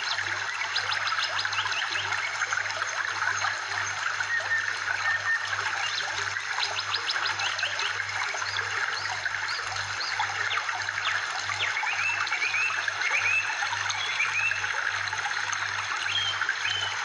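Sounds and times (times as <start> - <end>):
stream trickling: 0.0 - 17.0
birds chirping: 4.2 - 14.8.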